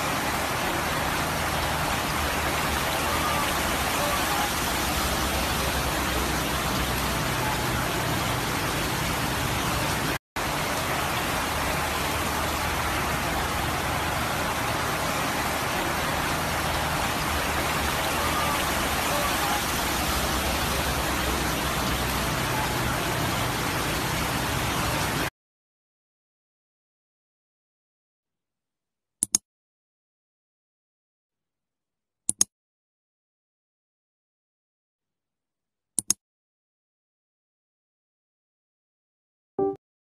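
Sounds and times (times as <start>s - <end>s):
heavy rain on flooded road: 0.0s - 25.3s
vehicles sloshing through water: 0.0s - 25.3s.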